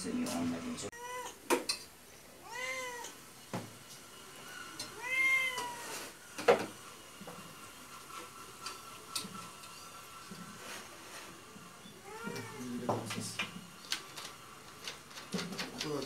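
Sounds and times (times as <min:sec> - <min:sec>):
cat meowing: 0:00.9 - 0:01.5, 0:02.4 - 0:03.2, 0:04.8 - 0:06.1, 0:12.0 - 0:12.8.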